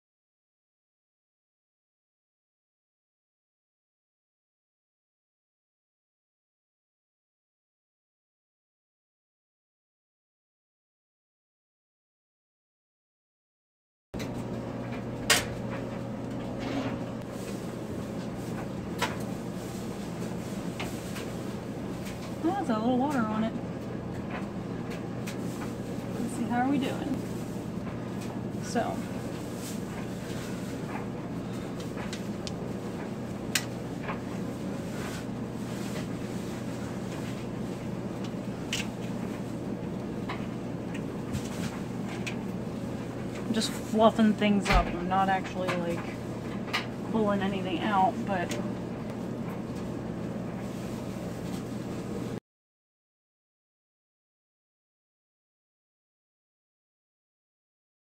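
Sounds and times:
steady low hum: 14.2s - 52.4s.

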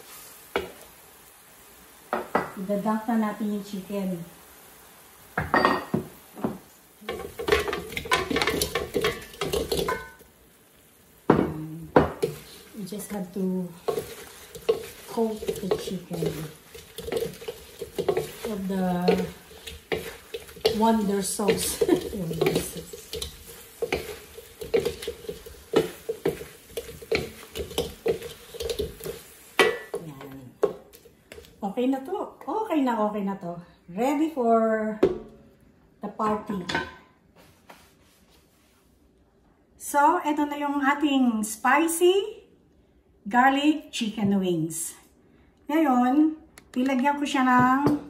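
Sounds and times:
utensil clattering against a pan: 7.1s - 10.2s, 13.8s - 30.0s.

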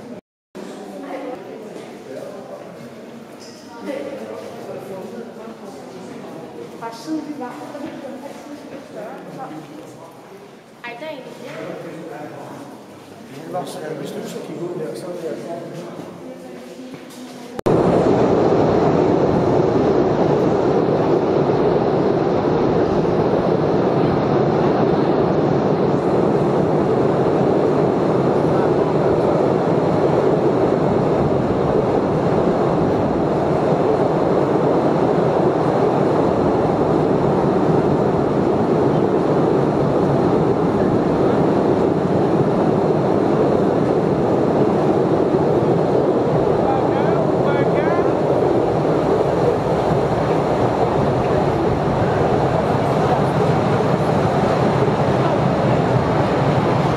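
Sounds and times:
train running on rails: 11.4s - 56.9s.

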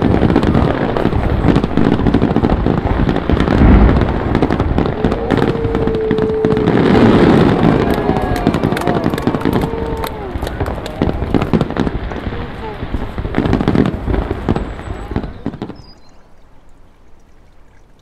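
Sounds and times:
heavy firework boom: 0.0s - 15.9s
fireworks crackling and popping: 0.0s - 16.1s.

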